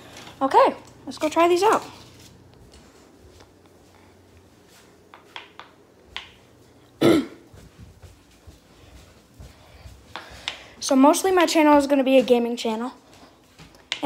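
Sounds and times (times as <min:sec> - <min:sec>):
person burping: 0:07.0 - 0:07.4.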